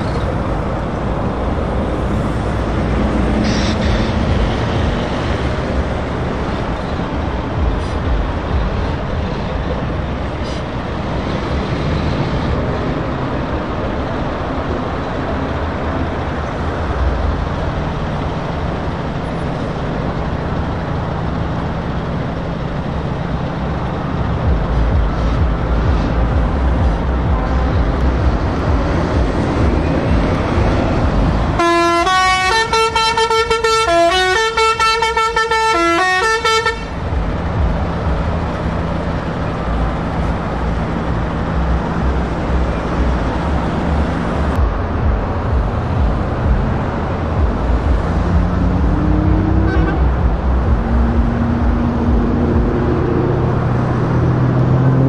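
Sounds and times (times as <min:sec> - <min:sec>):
diesel truck engines passing: 0:00.0 - 0:55.0
multi-note musical truck horn: 0:31.6 - 0:37.0, 0:48.5 - 0:50.2.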